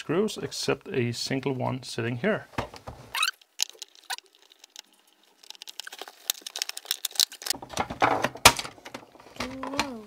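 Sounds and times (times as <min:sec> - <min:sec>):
plastic clips cracking: 0:05.4 - 0:10.0.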